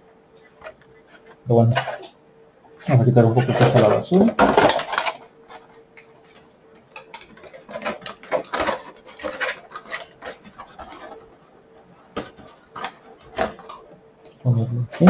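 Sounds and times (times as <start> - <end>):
plastic packaging crinkling: 3.4 - 14.0.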